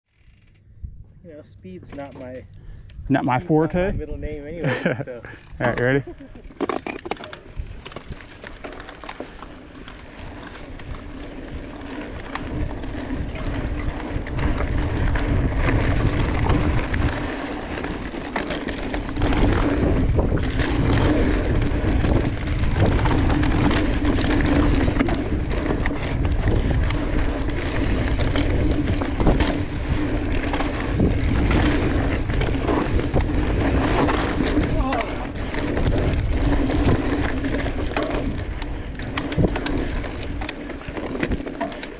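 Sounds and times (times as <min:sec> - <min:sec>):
bike clicks and rattles: 0:00.1 - 0:03.0, 0:04.2 - 0:41.9
tyres rolling on dirt: 0:04.6 - 0:41.9
wind buffeting microphone: 0:10.1 - 0:41.5.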